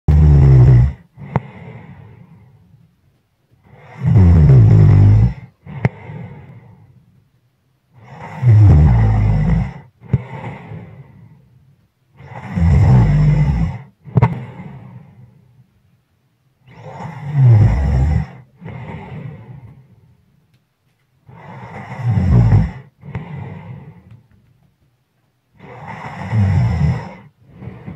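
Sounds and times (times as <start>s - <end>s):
person snoring: 0.1s - 2.4s, 3.6s - 6.8s, 8.0s - 11.3s, 12.2s - 15.1s, 16.7s - 19.8s, 21.3s - 24.1s, 25.6s - 27.9s
airy breath: 1.2s - 2.7s, 5.6s - 7.0s, 10.0s - 11.5s, 18.6s - 20.0s, 23.0s - 24.2s, 27.0s - 27.9s.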